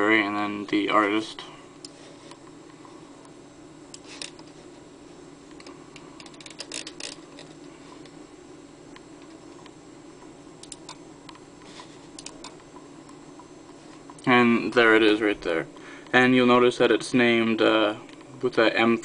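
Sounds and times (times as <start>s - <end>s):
steady low hum: 0.0s - 19.0s
computer mouse clicking: 10.6s - 11.4s, 12.2s - 12.8s.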